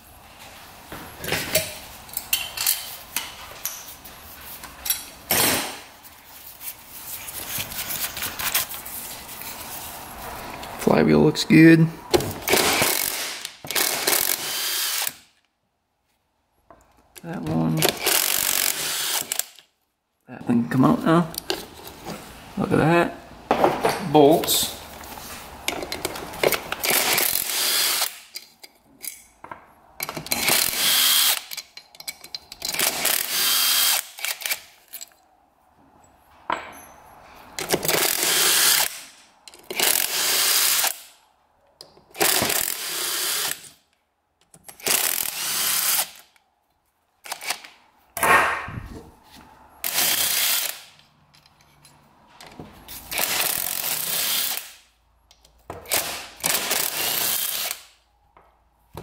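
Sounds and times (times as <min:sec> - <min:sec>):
power drill spinning out bolts: 0:12.4 - 0:15.2, 0:17.9 - 0:19.6, 0:25.9 - 0:28.3, 0:30.0 - 0:31.6, 0:37.6 - 0:41.1, 0:42.2 - 0:43.8, 0:44.8 - 0:46.3, 0:49.8 - 0:50.9, 0:53.1 - 0:54.7, 0:55.9 - 0:57.8.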